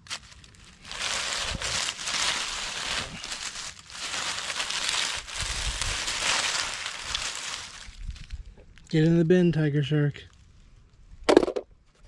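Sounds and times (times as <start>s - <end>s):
dry leaves crackling and rustling: 0.0s - 9.0s.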